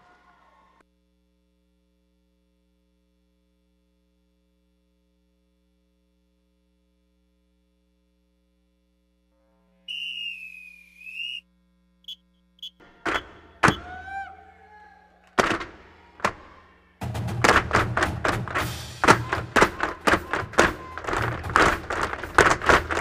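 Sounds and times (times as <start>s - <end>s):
loud whistle blast: 9.9s - 11.5s, 12.1s - 14.8s.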